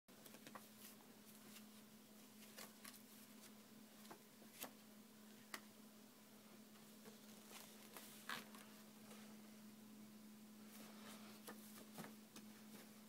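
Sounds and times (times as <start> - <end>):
faint steady hum: 0.1 - 13.0
paper pages rustling: 0.2 - 4.8, 7.1 - 8.8.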